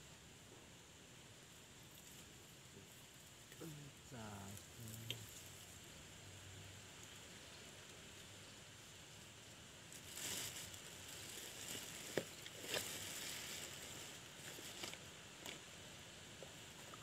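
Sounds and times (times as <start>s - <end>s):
plastic rustling and crinkling: 9.8s - 15.7s.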